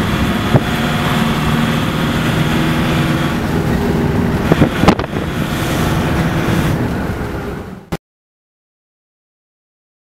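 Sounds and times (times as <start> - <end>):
vehicle engine and road noise: 0.0 - 8.0.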